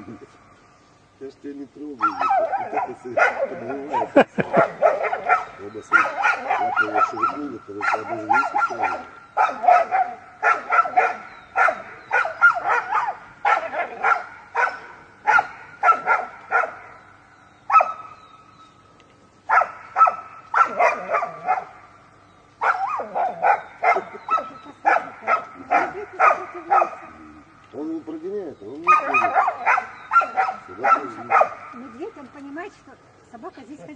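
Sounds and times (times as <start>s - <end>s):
dog barking: 2.0s - 17.0s, 17.7s - 18.2s, 19.5s - 21.9s, 22.6s - 27.5s, 28.8s - 32.2s.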